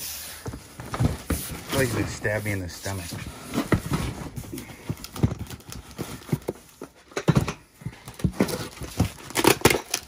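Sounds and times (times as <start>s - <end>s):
cardboard scraping: 0.1s - 6.7s
cardboard boxes knocking and thumping: 0.4s - 10.0s.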